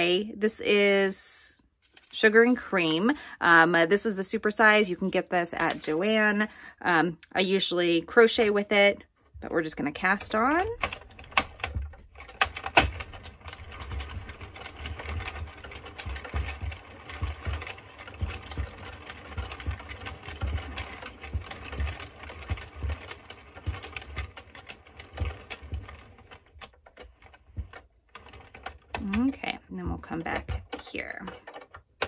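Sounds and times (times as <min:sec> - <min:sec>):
knitting machine plastic clicks: 0:10.0 - 0:32.0.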